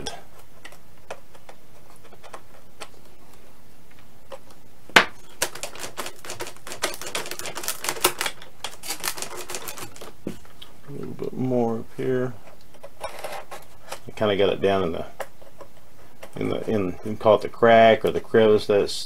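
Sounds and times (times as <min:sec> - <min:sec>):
hobby knife clicks and scratches: 0:05.4 - 0:10.1.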